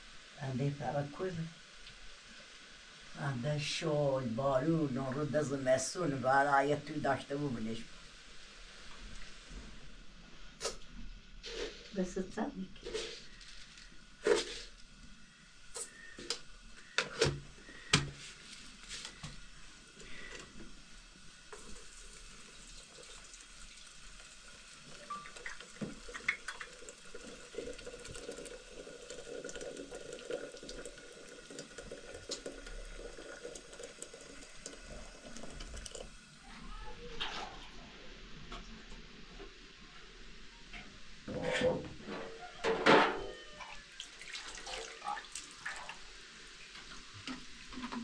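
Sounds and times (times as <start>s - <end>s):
water running and splashing: 21.3s - 36.4s, 43.9s - 48.0s.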